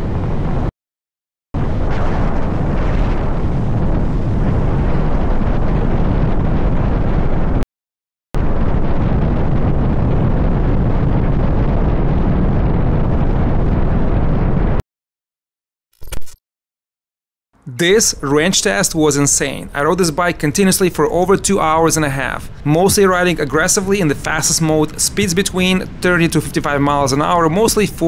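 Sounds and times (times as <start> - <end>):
wind buffeting on microphone: 0.0 - 0.7, 1.6 - 7.6, 8.4 - 14.8, 19.7 - 28.0.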